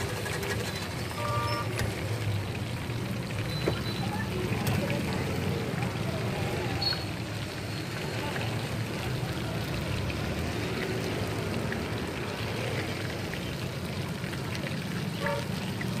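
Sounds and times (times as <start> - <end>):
chicken deep-frying in oil: 0.0 - 16.0.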